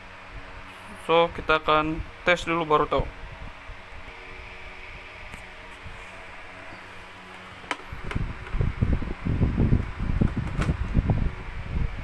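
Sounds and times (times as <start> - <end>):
power cord rustling and bumping: 7.2 - 8.7, 9.8 - 11.1.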